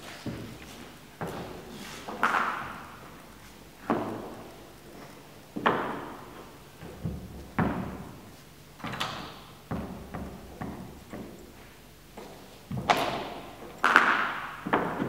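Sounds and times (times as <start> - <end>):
echoing thuds in a hall: 5.6 - 8.2, 8.8 - 11.4, 12.7 - 15.0.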